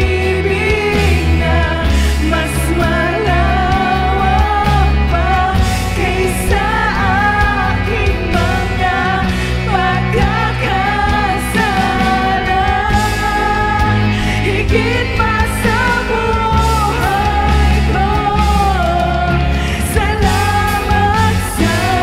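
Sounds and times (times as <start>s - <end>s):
acoustic guitar: 0.0s - 22.0s
drums: 0.0s - 22.0s
electric bass: 0.0s - 22.0s
women singing: 0.0s - 22.0s.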